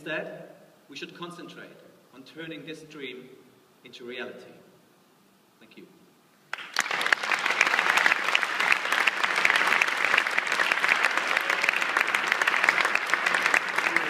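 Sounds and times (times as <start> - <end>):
audience applauding: 6.5 - 14.0.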